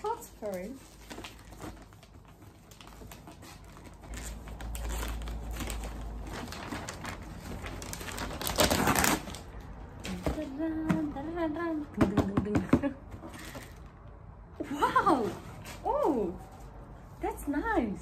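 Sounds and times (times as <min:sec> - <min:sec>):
wrapping paper tearing and crinkling: 0:00.0 - 0:10.2.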